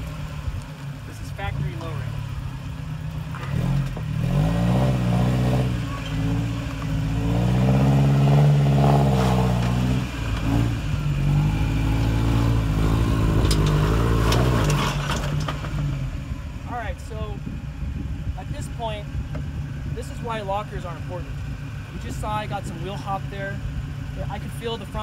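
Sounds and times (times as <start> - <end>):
truck engine revving: 0.0 - 16.7.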